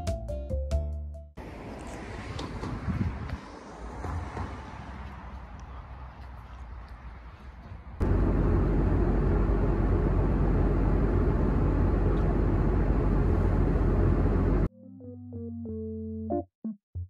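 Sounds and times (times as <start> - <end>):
airliner cabin noise: 7.6 - 14.7.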